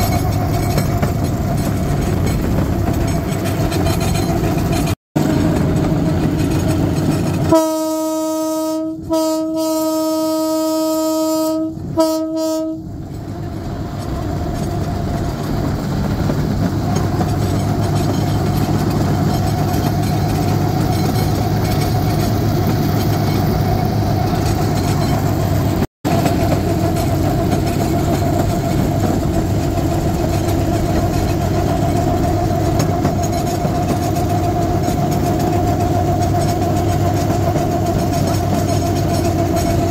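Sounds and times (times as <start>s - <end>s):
cart rolling on rails: 0.0s - 7.6s, 13.1s - 39.9s
horn blasts and toots: 7.4s - 12.9s.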